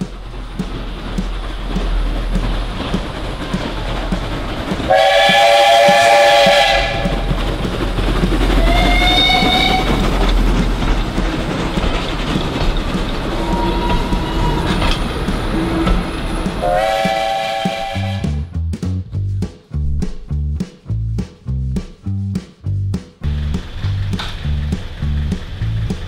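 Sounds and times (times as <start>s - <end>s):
steam hissing: 0.0s - 18.4s
steam locomotive whistle: 4.8s - 7.4s, 8.6s - 10.1s, 13.2s - 18.5s.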